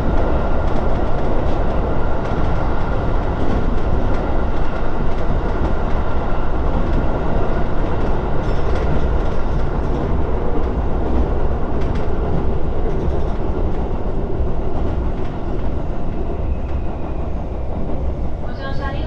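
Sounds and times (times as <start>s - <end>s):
train rumbling over bridge: 0.0s - 19.0s.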